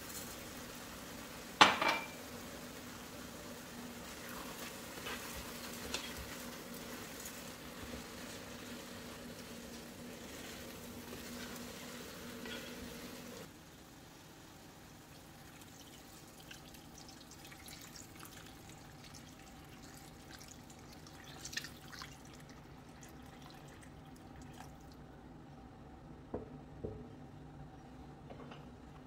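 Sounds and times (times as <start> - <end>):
sauce sizzling in a pot: 0.0 - 25.0
faint steady hum: 0.0 - 29.0
spoon scraping a pot: 12.4 - 12.9.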